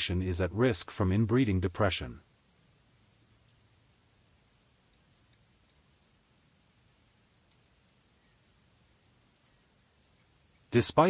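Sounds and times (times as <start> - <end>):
insect chirping trill: 0.0 - 11.0.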